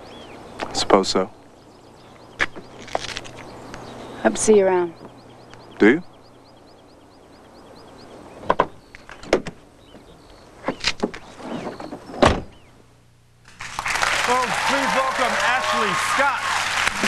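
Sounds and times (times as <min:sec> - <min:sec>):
faint bird chirps: 0:00.0 - 0:12.9
car door slam: 0:12.0 - 0:12.6.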